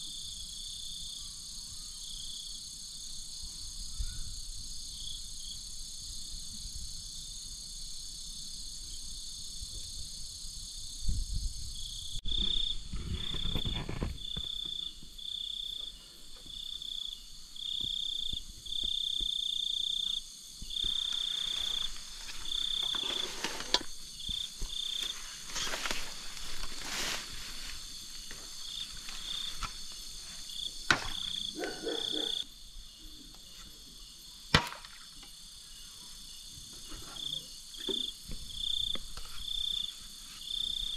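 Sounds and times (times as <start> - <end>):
insect chorus: 0.0 - 40.9
rustling and handling noise: 20.8 - 30.6.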